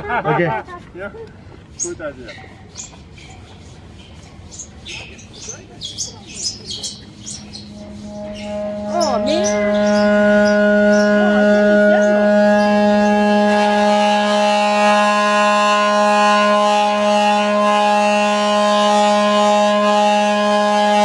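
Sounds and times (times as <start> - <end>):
rubbed gong humming: 6.2 - 21.0.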